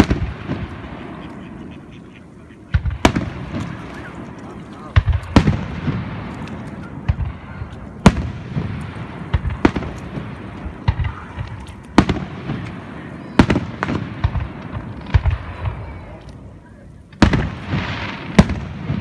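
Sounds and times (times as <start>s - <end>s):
firework shells bursting: 2.6s - 16.5s
small pops and crackles: 2.7s - 12.8s.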